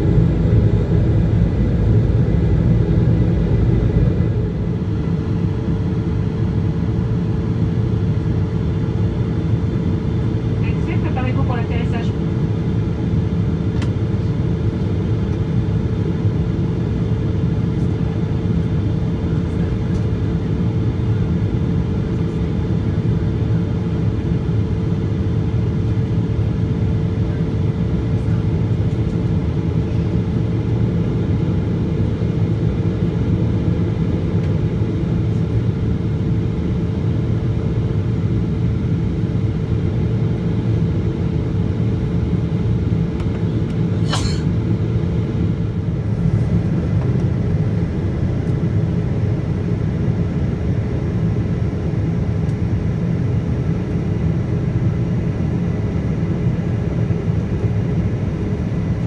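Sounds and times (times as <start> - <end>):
airliner cabin engine drone: 0.0 - 59.0
constant hum: 0.0 - 59.0.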